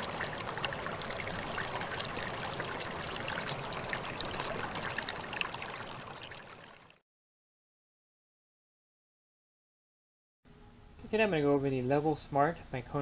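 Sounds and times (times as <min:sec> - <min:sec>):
water running and splashing: 0:00.0 - 0:07.0.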